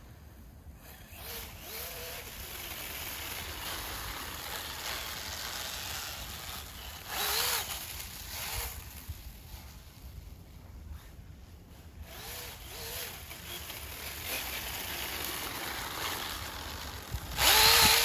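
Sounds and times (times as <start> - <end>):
electric motor whining: 0.8 - 9.1, 12.1 - 18.0
track hissing in snow: 0.8 - 18.0.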